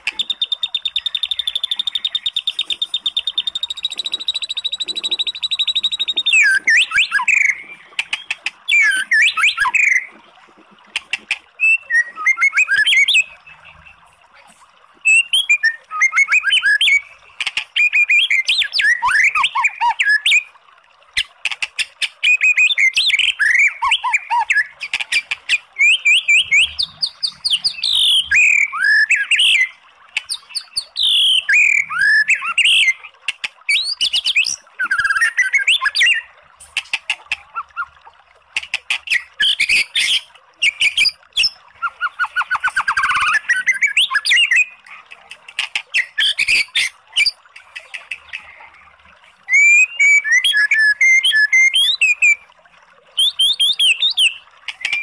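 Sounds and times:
bird singing whistled phrases: 0:00.1 - 0:10.1, 0:11.6 - 0:13.4, 0:15.0 - 0:17.1, 0:17.8 - 0:20.5, 0:22.2 - 0:24.7, 0:25.8 - 0:29.7, 0:30.5 - 0:33.0, 0:33.7 - 0:36.3, 0:39.1 - 0:44.8, 0:49.5 - 0:52.4, 0:53.2 - 0:55.0.

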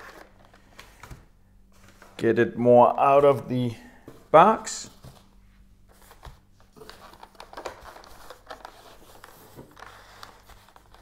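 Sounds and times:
plastic packaging crinkling: 0:06.0 - 0:11.0.

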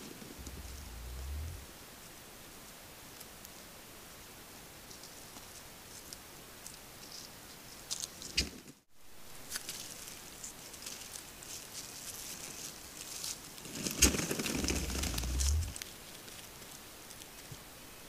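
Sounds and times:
turkeys scratching in dry leaves: 0:09.4 - 0:16.9.

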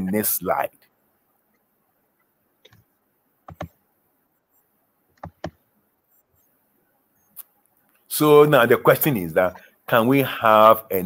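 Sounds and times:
computer mouse clicks: 0:02.6 - 0:02.9, 0:03.5 - 0:03.8, 0:05.1 - 0:05.6.

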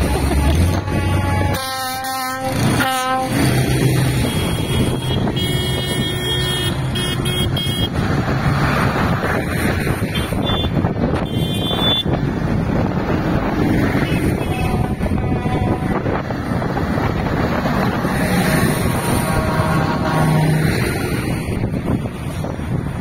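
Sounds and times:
diesel tractor engines running: 0:00.0 - 0:23.0.

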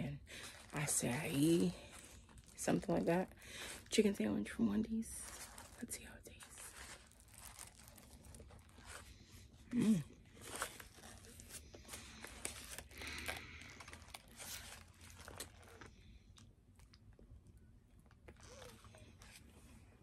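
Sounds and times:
paper wrapper crinkling: 0:00.0 - 0:17.2, 0:18.0 - 0:19.7
crunchy biting and chewing: 0:06.6 - 0:09.3, 0:10.0 - 0:19.6
person humming mm: 0:09.7 - 0:10.2.

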